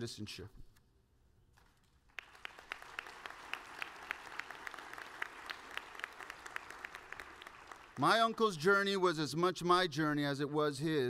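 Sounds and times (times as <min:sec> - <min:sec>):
audience clapping: 0:01.6 - 0:08.9.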